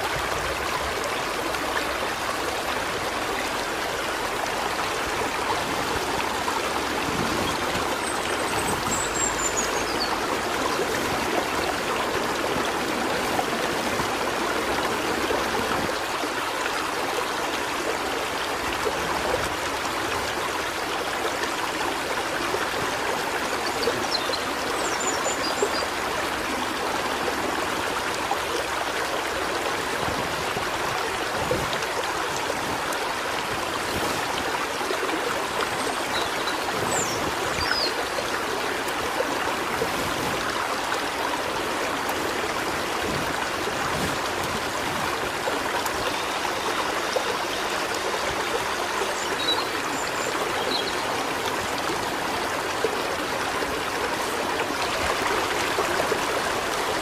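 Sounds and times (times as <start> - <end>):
stream babbling over rocks: 0.0 - 57.0.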